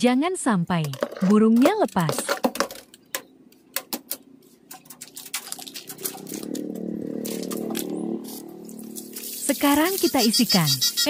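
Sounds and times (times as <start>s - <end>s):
plastic tub clicking and rattling: 0.8s - 7.9s.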